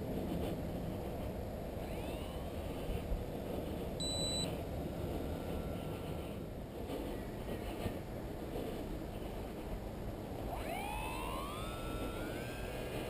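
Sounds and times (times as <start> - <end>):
faint pitch-bending whine: 0.0 - 13.0
wind rumbling on microphone: 0.0 - 13.0
high electronic beep: 4.0 - 4.5.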